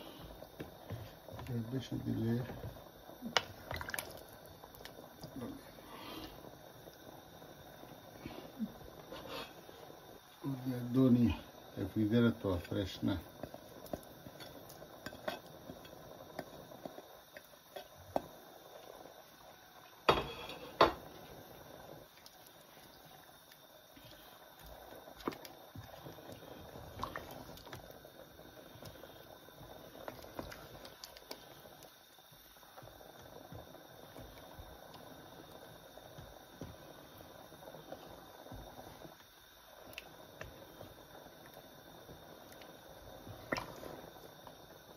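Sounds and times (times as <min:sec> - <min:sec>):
curry bubbling in a pot: 0:00.0 - 0:44.9.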